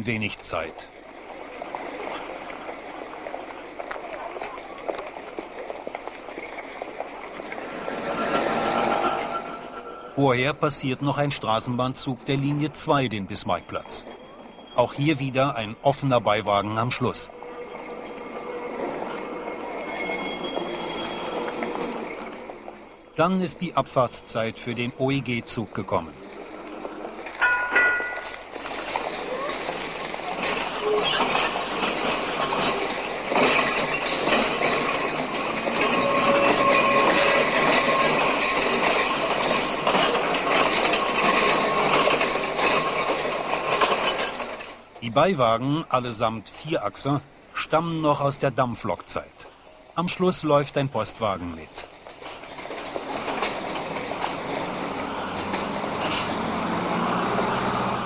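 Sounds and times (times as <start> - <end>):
tram wheels rattling on track: 0.0 - 58.0
vehicle passing: 54.4 - 58.0.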